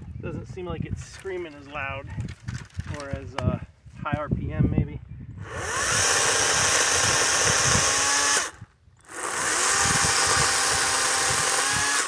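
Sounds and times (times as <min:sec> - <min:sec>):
battery chainsaw cutting branches: 0:05.4 - 0:12.0.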